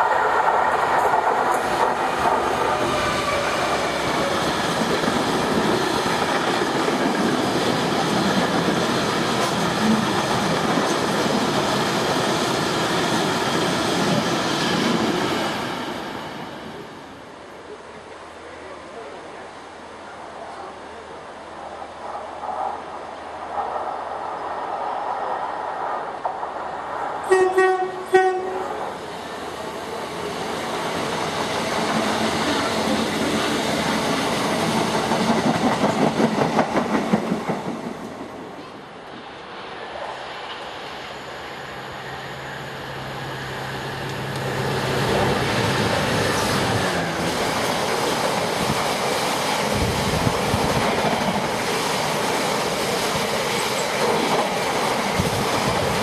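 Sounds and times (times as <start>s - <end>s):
train horn blasts: 27.3s - 28.9s
diesel locomotive engine drone: 38.0s - 56.0s.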